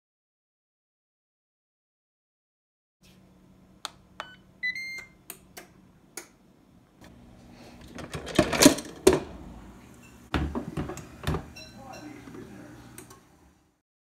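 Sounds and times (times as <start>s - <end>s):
lid scraping and clunking: 7.8s - 9.4s.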